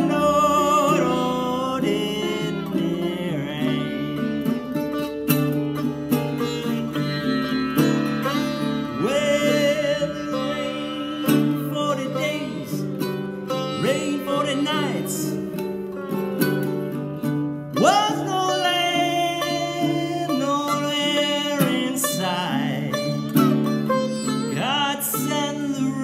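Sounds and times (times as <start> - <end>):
man singing: 0.0 - 5.1, 8.4 - 15.8, 17.7 - 26.0
sitar with pitch bends: 0.0 - 16.7, 22.1 - 26.0
plucked ukulele chords: 0.0 - 26.0.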